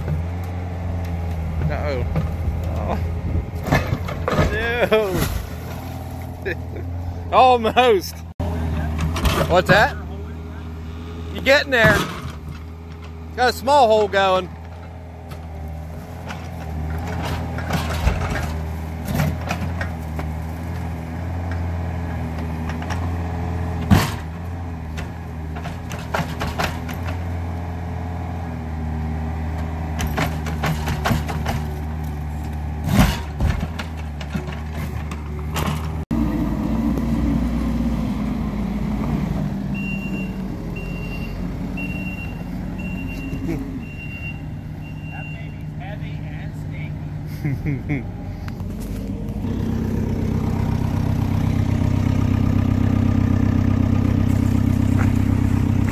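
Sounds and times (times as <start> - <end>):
excavator diesel engine: 0.0 - 55.9
backup alarm beeping: 39.7 - 45.6.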